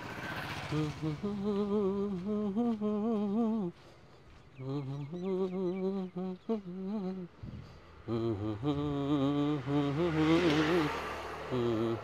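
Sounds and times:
person humming a tune: 0:00.7 - 0:03.8, 0:04.6 - 0:12.0.

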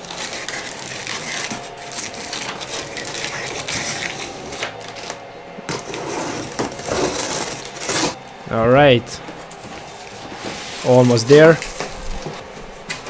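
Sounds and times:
knife slitting packing tape: 0:00.0 - 0:08.2
cardboard rustling: 0:00.0 - 0:08.3, 0:09.2 - 0:13.0.

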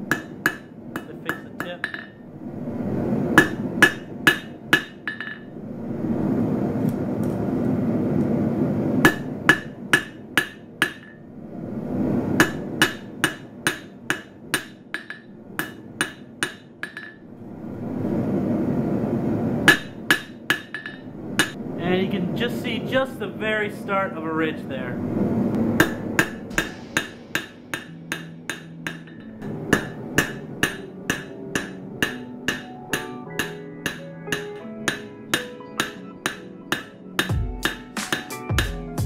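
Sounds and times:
hammer striking blade on anvil: 0:00.0 - 0:02.2, 0:09.0 - 0:11.2, 0:12.4 - 0:17.2, 0:19.7 - 0:21.6, 0:25.8 - 0:38.4
steady rushing noise: 0:00.0 - 0:32.7.

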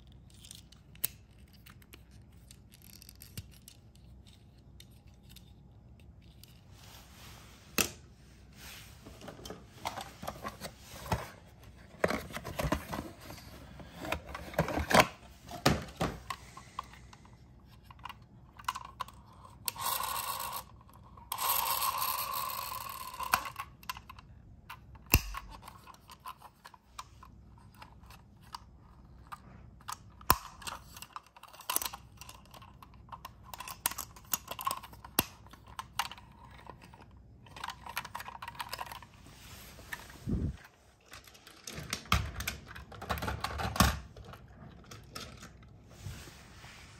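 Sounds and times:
plastic toy parts clicking: 0:00.1 - 0:05.5, 0:17.8 - 0:39.0.

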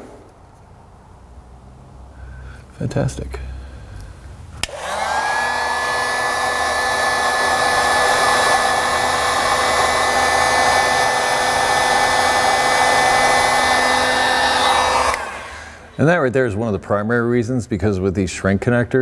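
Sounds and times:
heat gun fan whine: 0:04.5 - 0:16.0
rush of hot air: 0:04.6 - 0:16.0.

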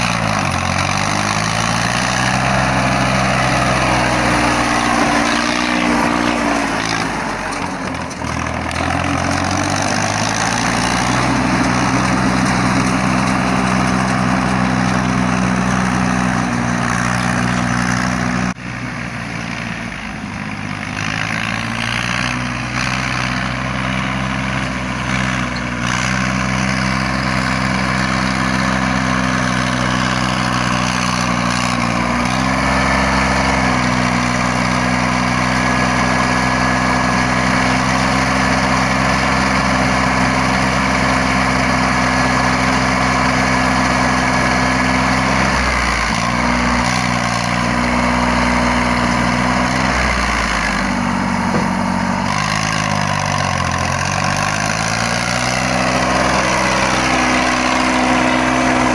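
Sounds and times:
tractor diesel engine running: 0:00.0 - 0:58.9.

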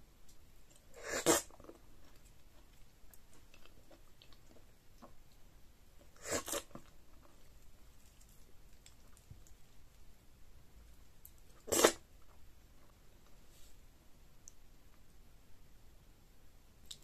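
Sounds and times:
soft chewing with clicks: 0:01.6 - 0:05.5, 0:06.6 - 0:10.0.

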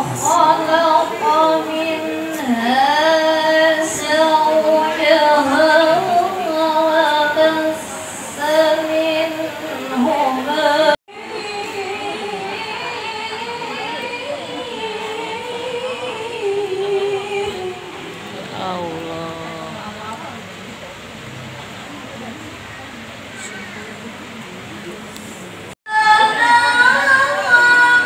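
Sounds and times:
woman singing slow melody: 0:00.0 - 0:20.1, 0:25.9 - 0:28.0.

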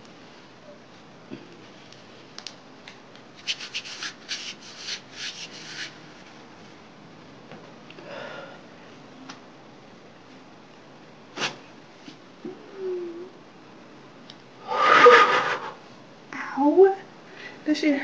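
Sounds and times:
waxing strip rubbing strokes: 0:03.4 - 0:06.0.

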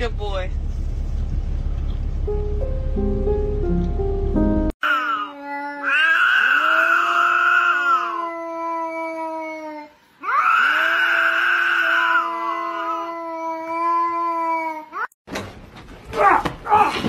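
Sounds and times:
cat yowling: 0:04.8 - 0:15.1.

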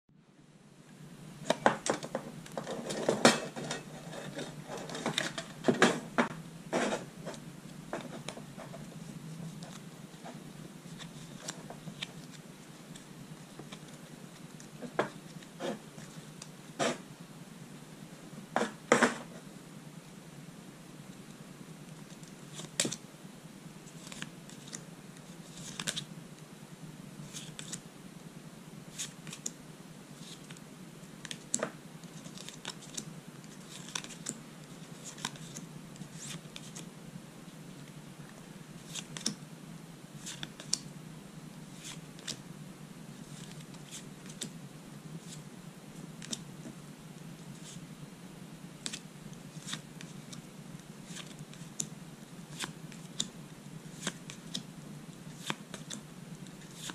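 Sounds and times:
steady low hum: 0:00.1 - 0:56.9
cards snapping and sliding: 0:25.5 - 0:26.1, 0:27.3 - 0:27.8, 0:38.9 - 0:39.4, 0:40.2 - 0:40.8, 0:52.5 - 0:53.3, 0:53.9 - 0:54.6, 0:55.4 - 0:56.0.

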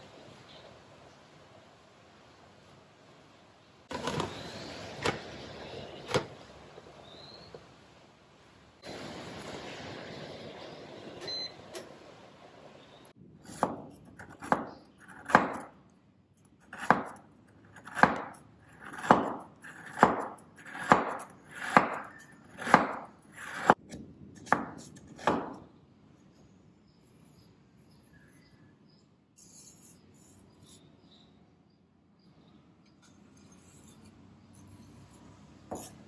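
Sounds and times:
knife chopping on cutting board: 0:13.5 - 0:15.7, 0:16.7 - 0:25.6, 0:35.7 - 0:36.0.

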